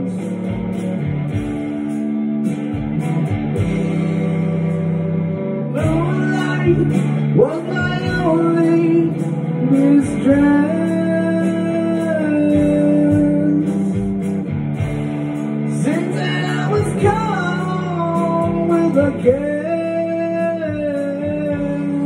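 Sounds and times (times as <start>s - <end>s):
man singing: 0.0s - 0.7s, 5.6s - 14.2s, 15.6s - 22.0s
strummed electric guitar: 0.0s - 22.0s.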